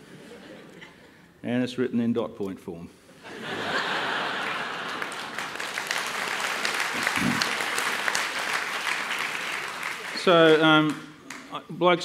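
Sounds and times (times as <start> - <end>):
audience applauding: 3.8 - 11.5.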